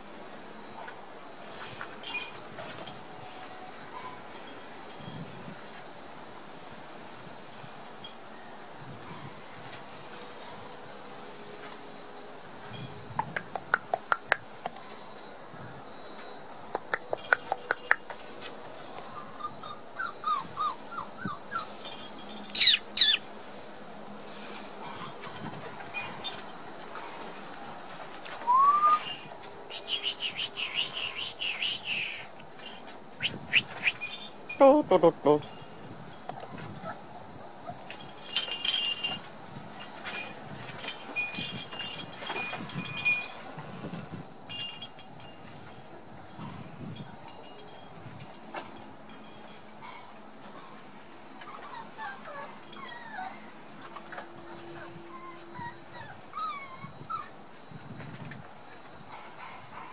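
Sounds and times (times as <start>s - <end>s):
small metal chimes tinkling: 2.0s - 3.4s, 16.8s - 18.4s, 20.0s - 23.4s, 25.9s - 26.6s, 33.7s - 36.6s, 37.9s - 43.6s, 44.5s - 50.1s
sharp clicks: 13.2s - 14.4s, 16.8s - 18.1s
puppy squeaking: 19.2s - 21.7s, 22.5s - 23.2s, 33.2s - 34.1s, 54.8s - 57.3s
puppy yelping: 19.2s - 21.7s, 22.5s - 23.2s, 51.4s - 53.5s, 54.8s - 57.4s.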